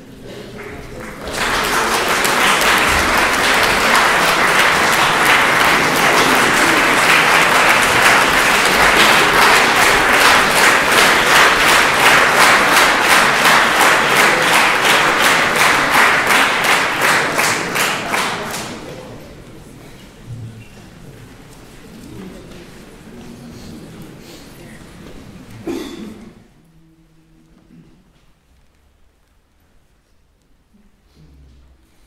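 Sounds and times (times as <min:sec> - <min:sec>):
audience applause: 0:00.0 - 0:19.1.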